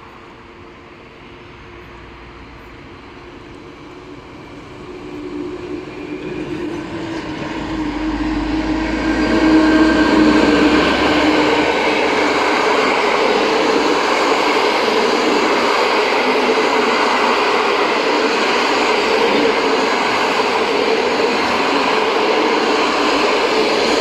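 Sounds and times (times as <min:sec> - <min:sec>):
electric locomotive hum: 0:00.0 - 0:24.0
train wheels rumbling on rails: 0:00.0 - 0:24.0.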